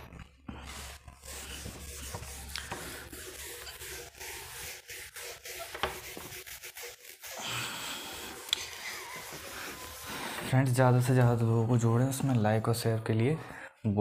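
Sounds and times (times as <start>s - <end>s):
pen scratching while handwriting: 0.6s - 10.4s.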